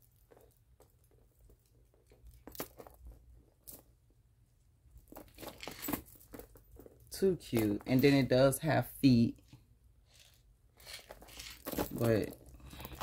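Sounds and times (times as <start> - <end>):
sharp crinkles: 10.1 - 13.0.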